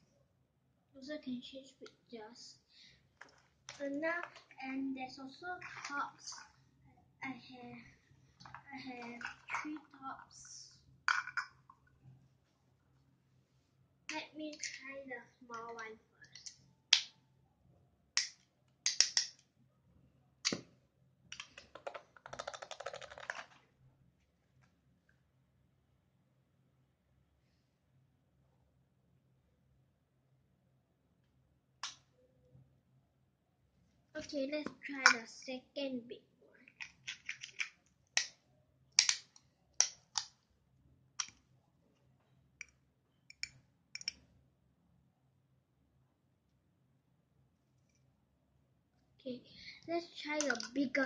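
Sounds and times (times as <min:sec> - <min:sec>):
plastic spinning top clicks: 0:21.3 - 0:23.6
small toys clicking: 0:21.4 - 0:23.6, 0:36.7 - 0:38.4, 0:39.0 - 0:40.4, 0:41.2 - 0:41.4, 0:43.3 - 0:44.2, 0:50.2 - 0:51.0.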